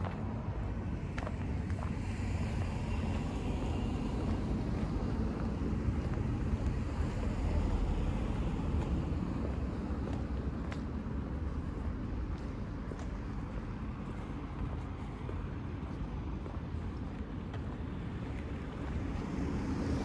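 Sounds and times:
vehicle passing: 0.0 - 15.1
street traffic rumble: 0.0 - 20.0.

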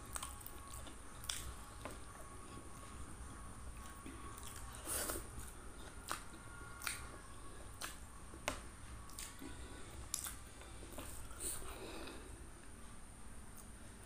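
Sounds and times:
wet lip smacks and sucking: 6.0 - 7.1, 7.7 - 9.4, 10.1 - 11.6.

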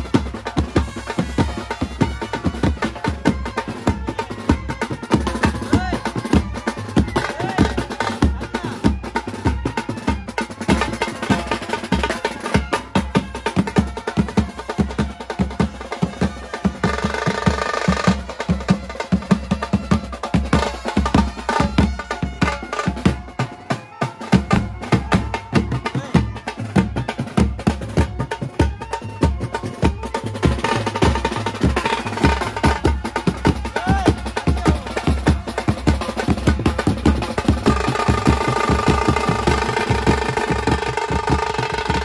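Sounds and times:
snare and bass drums beating: 0.0 - 42.0
saxophone melody: 37.6 - 42.0.

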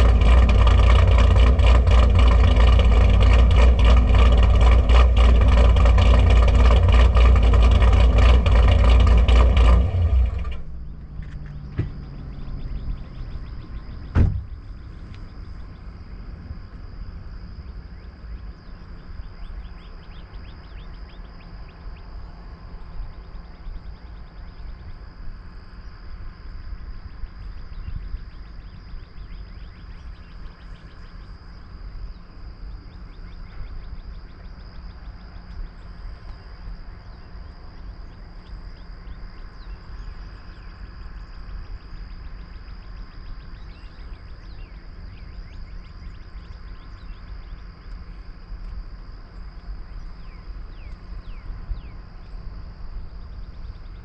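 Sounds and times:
insects buzzing and ticking: 0.0 - 54.0
steady low rumble: 0.0 - 54.0
car door shutting: 11.2 - 12.2, 14.0 - 14.6.

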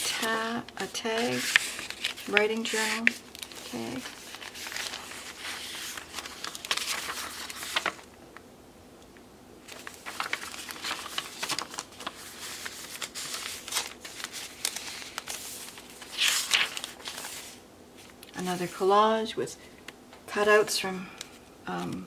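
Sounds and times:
paper rustling and crinkling: 0.0 - 8.1, 9.6 - 18.9.

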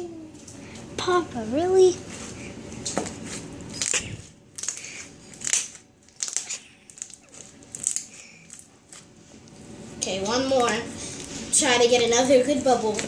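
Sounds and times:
slime squelching and popping: 3.6 - 9.1.

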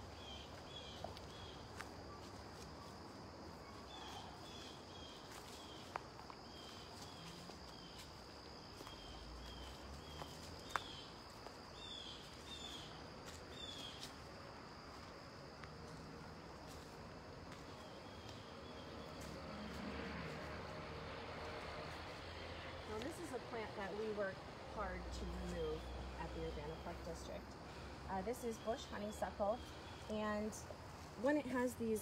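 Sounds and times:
insects trilling: 0.0 - 32.0
footsteps on leaf litter: 4.0 - 23.9.

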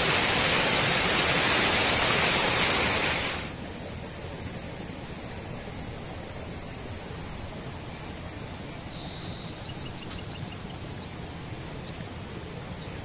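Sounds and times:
mountain stream rushing: 0.0 - 13.0
small bird buzzing and singing: 8.8 - 11.0.

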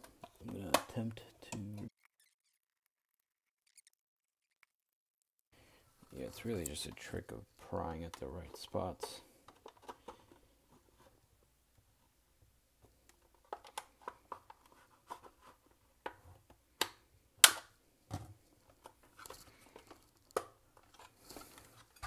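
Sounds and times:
plastic clicks and scraping: 8.0 - 10.5, 13.0 - 16.2
sharp plastic snap: 16.8 - 17.7.

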